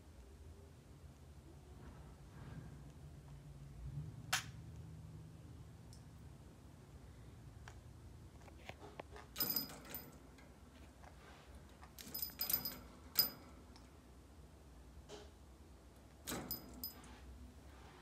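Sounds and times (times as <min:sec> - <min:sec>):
birdcage wire clinking and jangling: 0:09.4 - 0:10.5, 0:11.9 - 0:13.8, 0:16.2 - 0:17.2.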